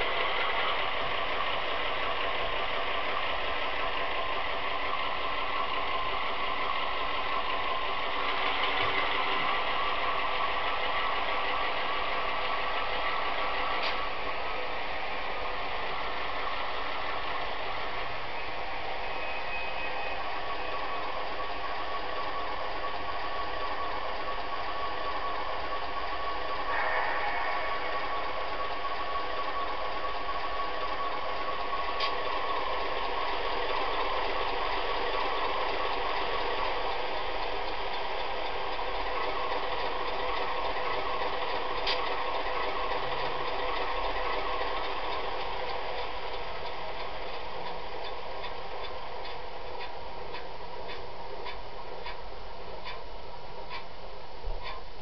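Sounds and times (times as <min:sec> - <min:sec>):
model diesel engine sound: 0:00.0 - 0:55.0
steady tone: 0:09.5 - 0:33.1.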